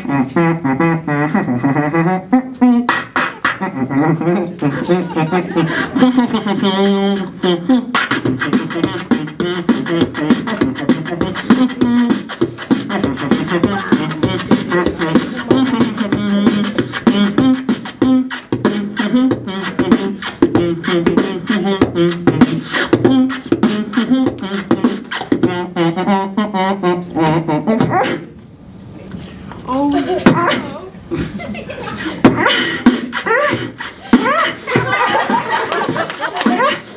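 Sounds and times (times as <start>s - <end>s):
hummed low tones: 0.0s - 28.3s
beatboxing into a microphone: 0.0s - 36.9s.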